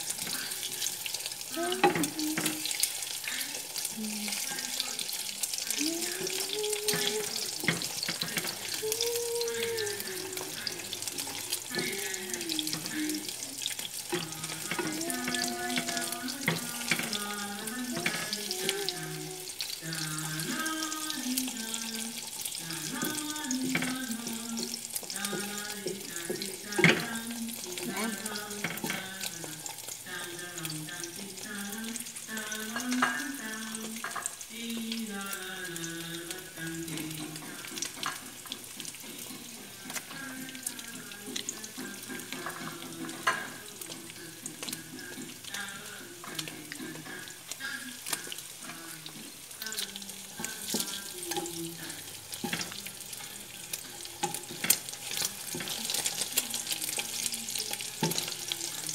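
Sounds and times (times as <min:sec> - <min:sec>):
eggs sizzling in a pan: 0:00.0 - 0:58.9
faint tune: 0:05.6 - 0:29.5
wooden spatula knocking pan: 0:41.3 - 0:45.5.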